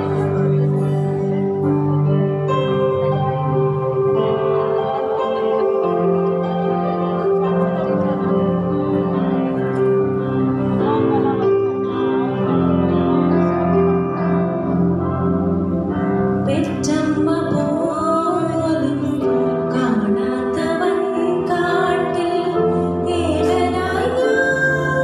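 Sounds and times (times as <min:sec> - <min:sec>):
electronic keyboard chords and melody: 0:00.0 - 0:25.0
woman singing: 0:16.5 - 0:25.0.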